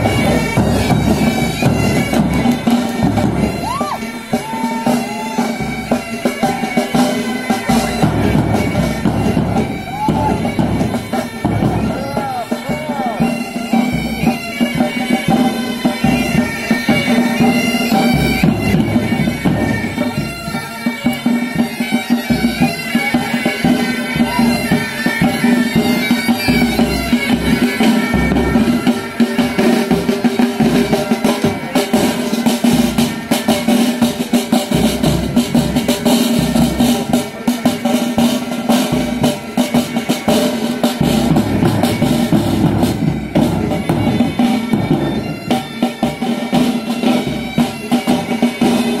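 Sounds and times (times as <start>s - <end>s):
bagpipes playing: 0.0s - 49.0s
snare drums: 0.0s - 49.0s.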